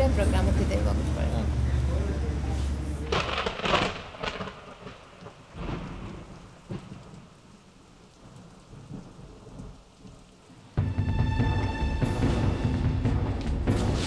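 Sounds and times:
rain falling: 0:00.0 - 0:14.0
thunder rumbling: 0:03.0 - 0:14.0.

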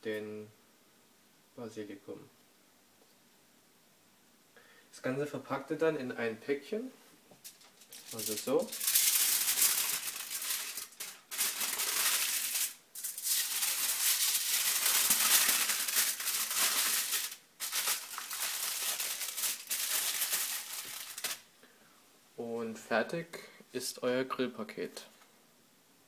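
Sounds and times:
aluminium foil crinkling: 0:07.4 - 0:21.5.

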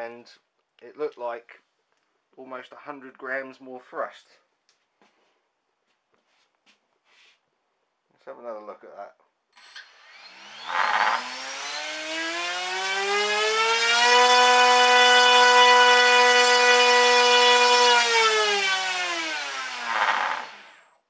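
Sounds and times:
electric motor whine: 0:09.8 - 0:20.8.

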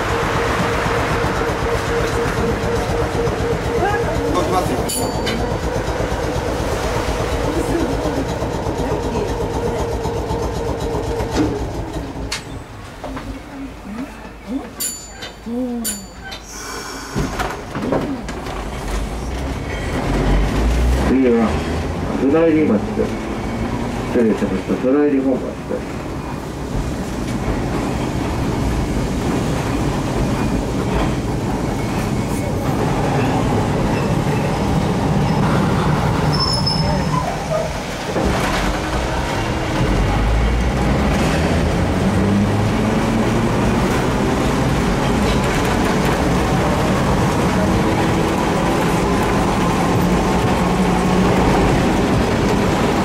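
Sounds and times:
tram low hum: 0:00.0 - 0:53.0.

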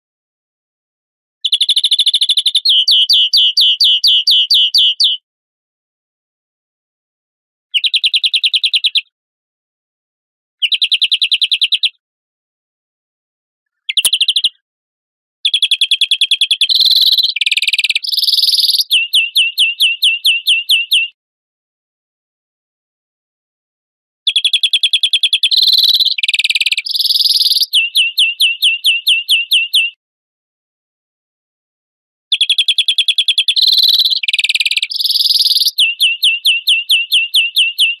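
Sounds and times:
finch song with trills: 0:01.5 - 0:05.2, 0:13.8 - 0:14.6, 0:15.5 - 0:21.2, 0:24.3 - 0:30.0, 0:32.3 - 0:38.0.

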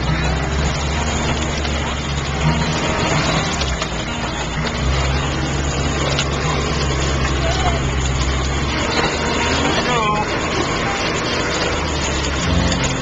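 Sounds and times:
road and cab noise: 0:00.0 - 0:13.0
vehicle engine humming: 0:00.0 - 0:13.0.

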